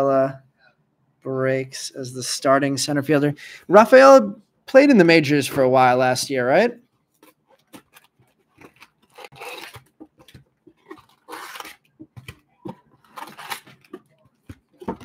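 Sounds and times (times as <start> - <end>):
foil packs crinkling: 7.2 - 14.8.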